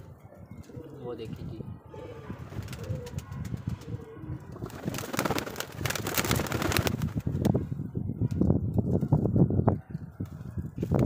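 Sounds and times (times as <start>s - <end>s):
pigeons cooing: 0.0s - 5.6s
wind buffeting microphone: 0.0s - 11.0s.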